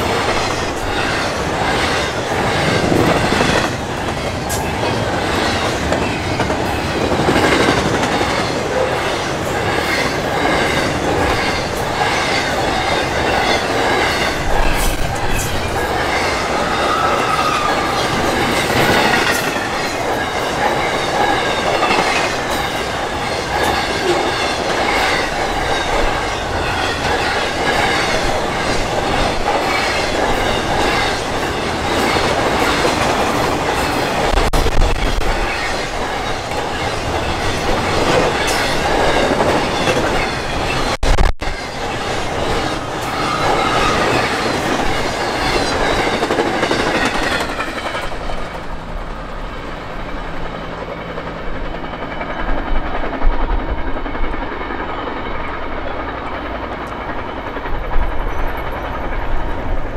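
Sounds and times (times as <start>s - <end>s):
wind on microphone: 0.0s - 8.4s
rail clacks: 0.0s - 59.9s
train wheels on rails: 0.0s - 59.9s.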